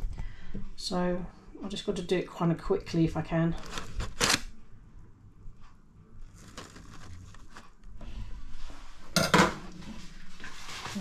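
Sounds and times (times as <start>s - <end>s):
paper rustling: 6.3s - 7.8s.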